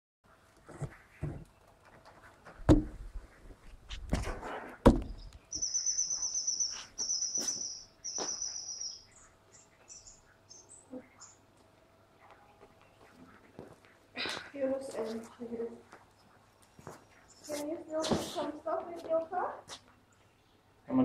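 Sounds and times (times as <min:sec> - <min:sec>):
sharp knocks: 0:02.7 - 0:03.0
high trilled chirps: 0:05.5 - 0:09.3.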